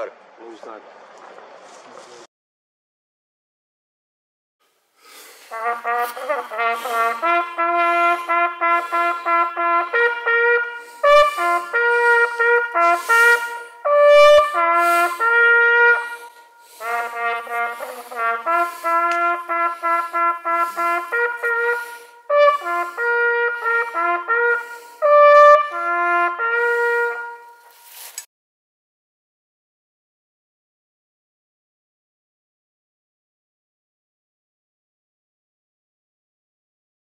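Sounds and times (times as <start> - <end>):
horn playing a melody: 5.2 - 28.2.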